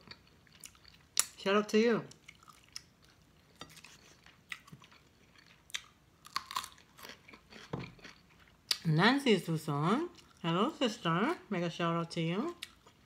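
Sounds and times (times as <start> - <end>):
close chewing with crunches: 0.0 - 1.4, 2.1 - 8.9.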